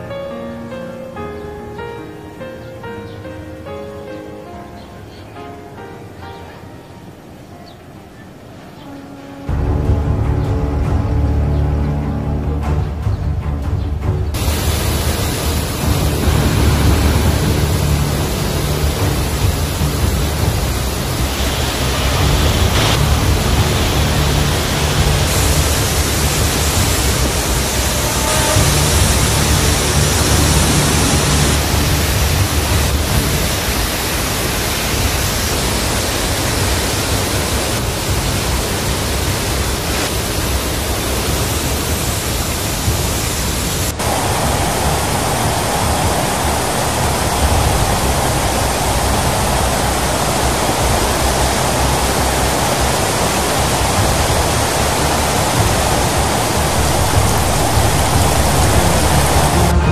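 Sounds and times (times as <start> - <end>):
faint music: 0.0 - 59.9
floodwater rushing and crashing: 6.6 - 59.9.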